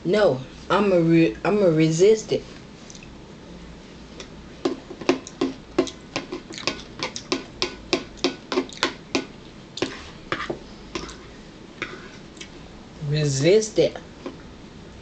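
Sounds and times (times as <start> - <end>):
person chewing food: 4.2 - 12.6.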